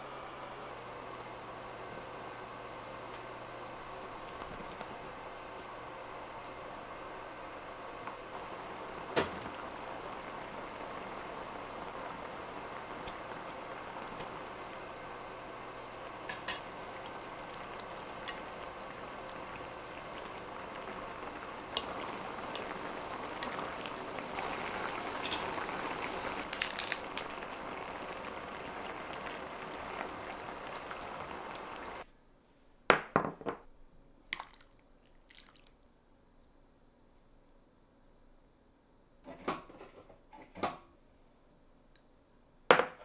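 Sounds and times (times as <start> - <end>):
steady watery hiss with crackles: 0.0 - 32.1, 34.2 - 36.0.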